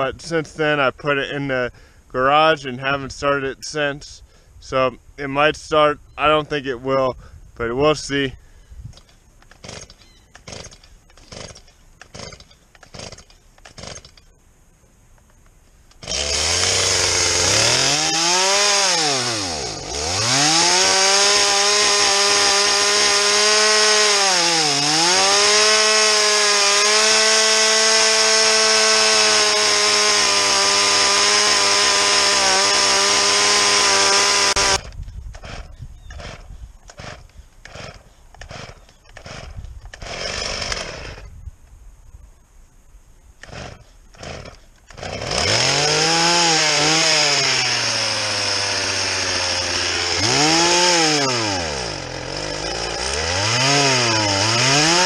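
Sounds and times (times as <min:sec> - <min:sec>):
chainsaw running at high revs: 0:09.6 - 0:09.9, 0:10.5 - 0:14.1, 0:16.0 - 0:41.3, 0:43.4 - 0:55.0.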